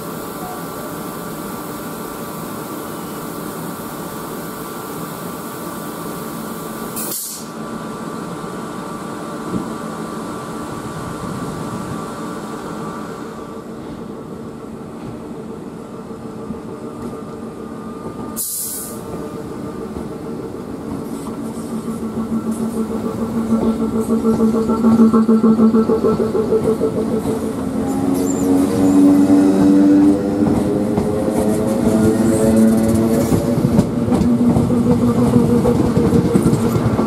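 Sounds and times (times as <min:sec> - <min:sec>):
electric train rolling past: 0:00.0 - 0:37.0
train electrical hum and whine: 0:00.0 - 0:37.0
short hisses: 0:07.0 - 0:07.6.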